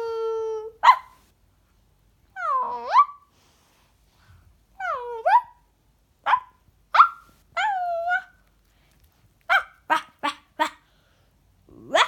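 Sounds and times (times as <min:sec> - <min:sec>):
small dog yipping and barking: 0:00.8 - 0:01.2, 0:02.4 - 0:03.3, 0:04.8 - 0:08.4, 0:09.5 - 0:10.8
dog whining: 0:02.4 - 0:03.3.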